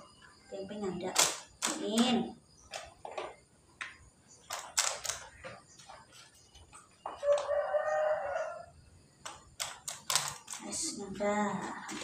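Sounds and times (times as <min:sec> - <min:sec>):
rooster crowing: 0:07.1 - 0:08.8.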